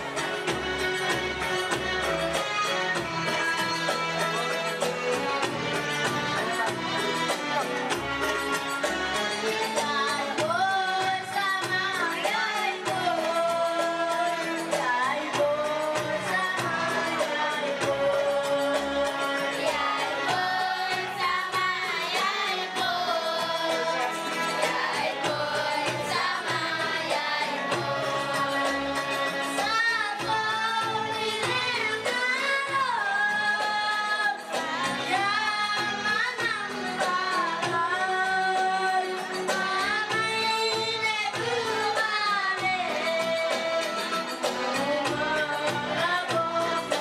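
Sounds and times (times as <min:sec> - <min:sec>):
girl singing into a microphone: 0:09.9 - 0:18.3, 0:29.6 - 0:44.0, 0:44.6 - 0:47.0.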